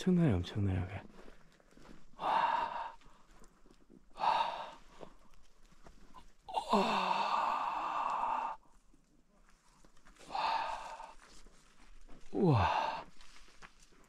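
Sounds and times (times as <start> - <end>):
person breathing out heavily: 2.2 - 3.3, 4.1 - 5.2, 6.5 - 8.7, 10.2 - 11.3, 12.3 - 13.3
person sighing: 6.5 - 8.6, 12.3 - 13.1.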